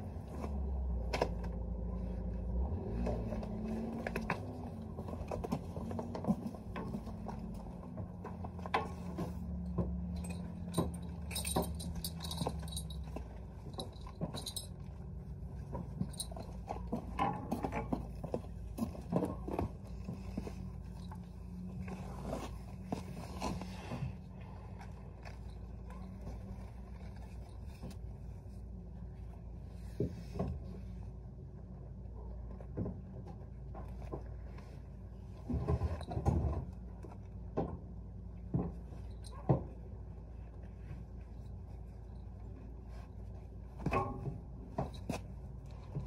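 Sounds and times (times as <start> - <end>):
metal buckles clinking and jingling: 9.1 - 15.2, 15.9 - 19.0.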